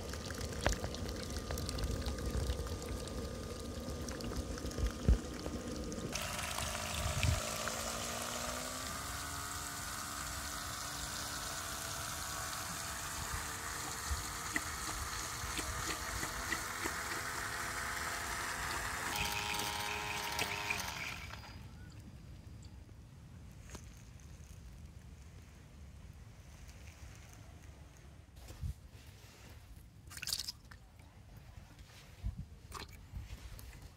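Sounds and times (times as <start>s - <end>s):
water pouring and trickling: 0.0s - 21.6s, 30.1s - 30.8s
small electric motor whining: 6.1s - 21.8s.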